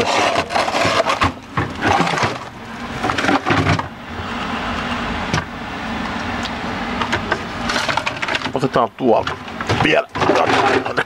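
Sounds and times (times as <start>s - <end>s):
frozen packages clattering: 0.0s - 3.8s.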